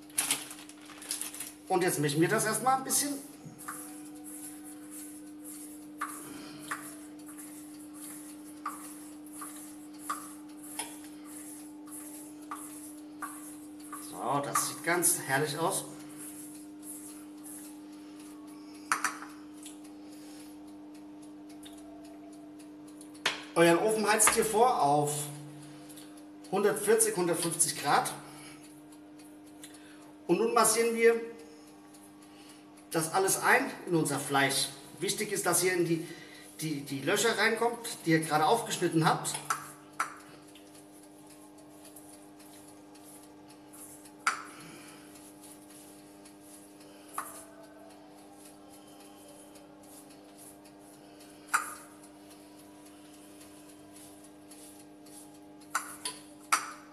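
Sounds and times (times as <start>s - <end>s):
steady low hum: 0.0s - 56.9s
hands rubbing meat: 3.6s - 15.2s.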